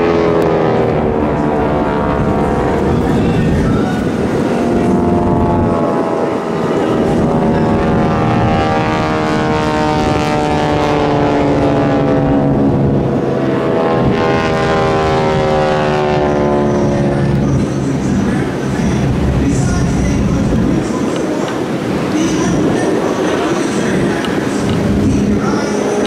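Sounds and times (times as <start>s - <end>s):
propeller airplanes droning overhead: 0.0s - 26.0s.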